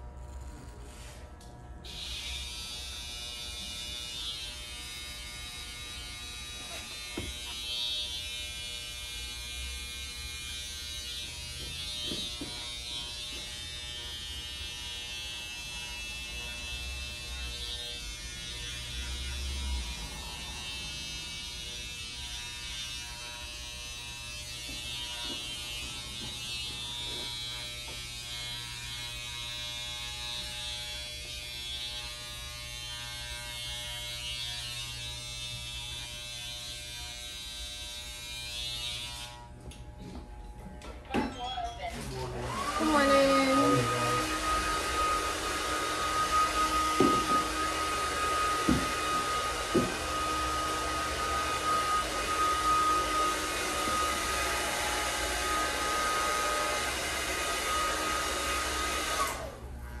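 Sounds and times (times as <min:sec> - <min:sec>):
electric hair clipper buzzing: 0:00.0 - 0:41.0, 0:42.2 - 1:00.0.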